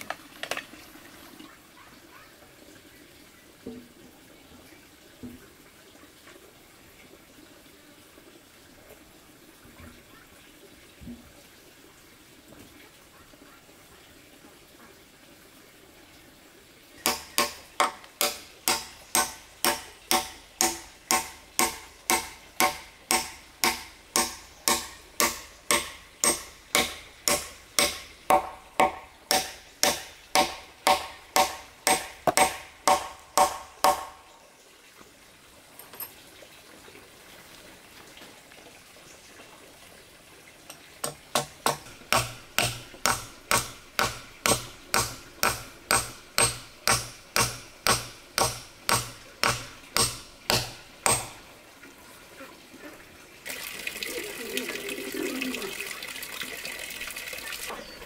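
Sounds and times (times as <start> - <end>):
hammer driving nail into wood: 17.0 - 34.1, 41.0 - 51.4.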